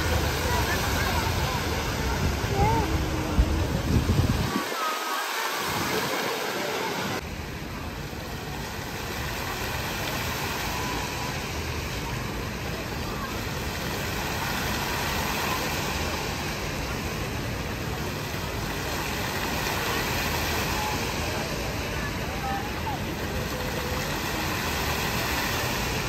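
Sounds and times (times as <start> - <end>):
murmur of voices: 0.0 - 26.0.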